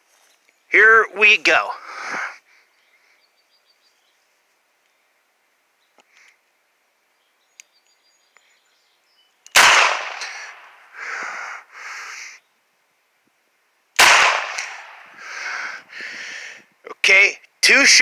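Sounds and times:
revolver gunshots: 9.5s - 10.8s, 14.0s - 15.1s.

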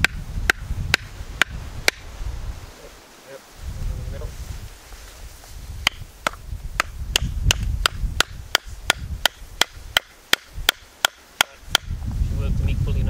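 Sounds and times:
wooden mallet knocking wedges: 5.8s - 11.9s.

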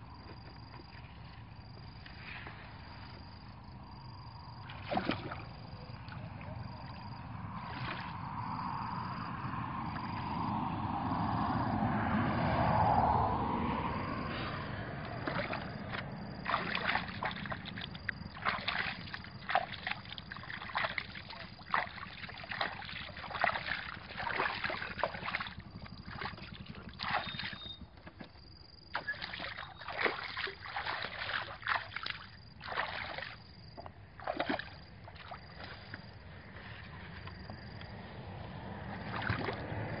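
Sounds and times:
muddy water splashing: 4.5s - 9.1s, 14.3s - 40.0s.

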